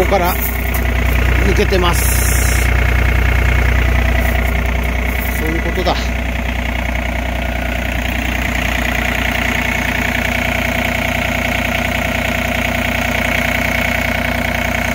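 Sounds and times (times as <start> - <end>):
diesel engine idling: 0.0 - 14.9.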